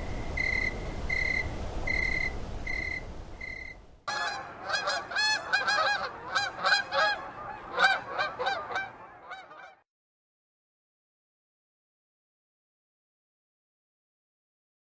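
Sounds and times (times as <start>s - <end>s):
geese honking: 0.4s - 9.8s.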